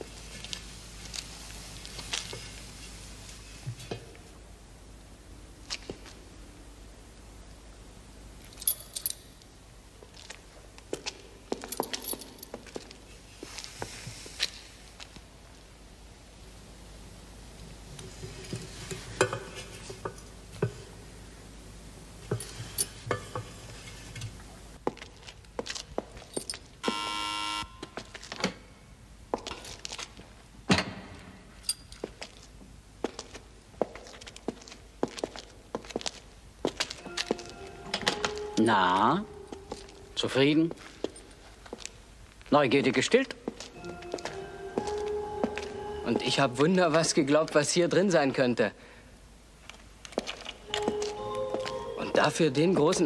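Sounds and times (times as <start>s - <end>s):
keys jangling: 8.5s - 9.3s, 11.6s - 12.6s
electric door opener buzzing: 26.8s - 27.8s.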